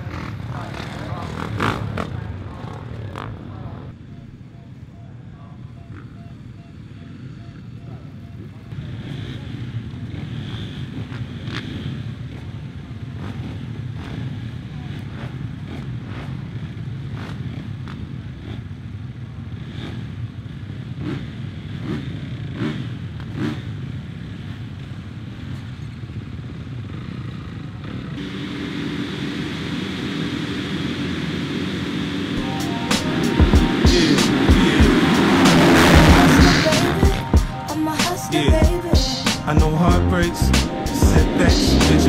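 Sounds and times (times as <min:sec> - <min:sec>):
engines droning at high revs: 0:00.0 - 0:04.0, 0:05.8 - 0:25.8, 0:26.5 - 0:42.0
motocross bikes idling: 0:00.0 - 0:42.0
throttle blips: 0:04.0 - 0:08.7.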